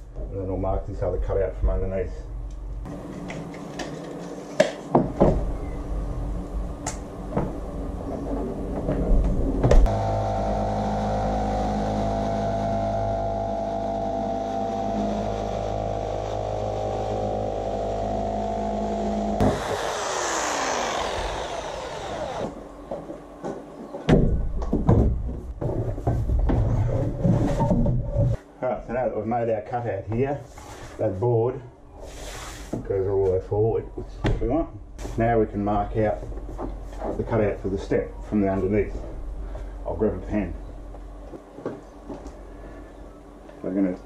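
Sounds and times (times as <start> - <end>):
electric jigsaw cutting plywood: 9.9 - 22.7.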